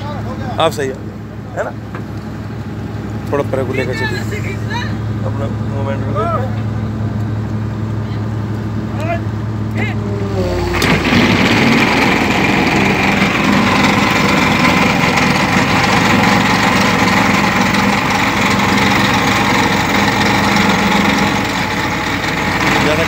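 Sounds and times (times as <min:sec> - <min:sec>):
diesel engine working under load: 0:00.0 - 0:23.0
vibratory pile hammer running: 0:10.0 - 0:23.0.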